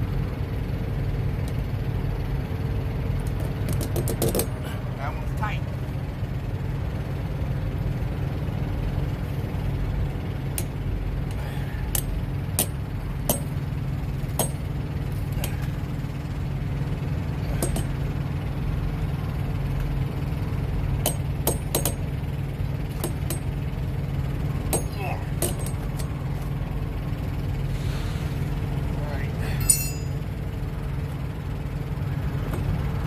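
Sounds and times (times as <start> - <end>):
truck engines idling: 0.0 - 33.0
metal chain links clinking: 29.4 - 30.2.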